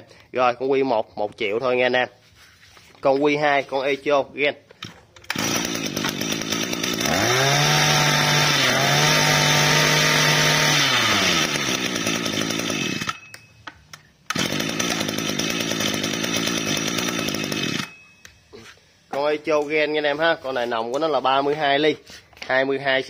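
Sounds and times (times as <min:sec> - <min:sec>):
brush-cutter engine idling and revving: 0:05.2 - 0:13.4, 0:14.3 - 0:18.0.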